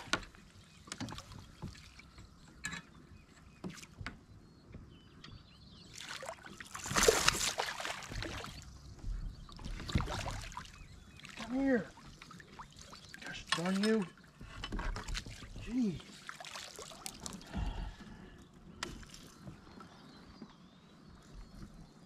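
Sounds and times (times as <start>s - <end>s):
fishing gear clicks and knocks: 13.3s - 15.7s.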